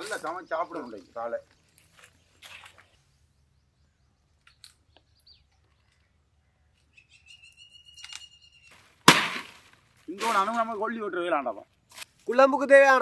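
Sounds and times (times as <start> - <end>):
faint bird chirps: 0.0 - 9.0.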